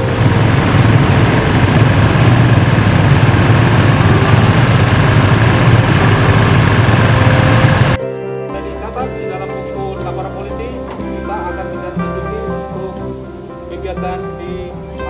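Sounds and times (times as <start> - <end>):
motorcycle engines droning: 0.0 - 8.0.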